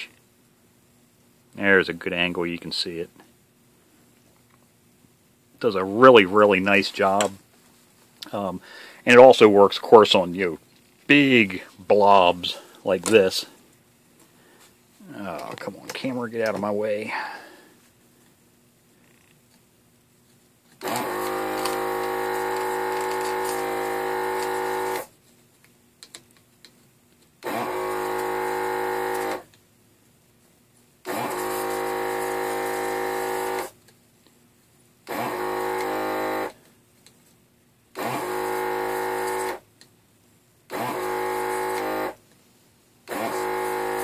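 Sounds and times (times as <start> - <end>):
desoldering tool vacuum pump running: 20.8 - 25.1, 27.4 - 29.6, 31.0 - 33.8, 35.1 - 36.6, 38.0 - 39.6, 40.7 - 42.2, 43.1 - 44.0.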